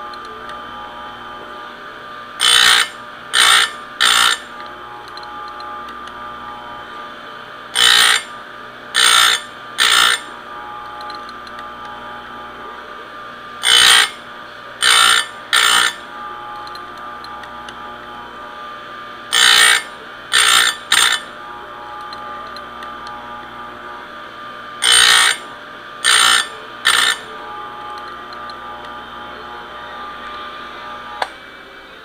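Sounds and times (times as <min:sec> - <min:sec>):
sharpener motor hum: 0:00.0 - 0:32.0
grinding wheel on chain: 0:02.4 - 0:04.5, 0:07.8 - 0:08.3, 0:09.0 - 0:10.3, 0:13.6 - 0:14.2, 0:14.8 - 0:16.0, 0:19.3 - 0:21.3, 0:24.8 - 0:27.3.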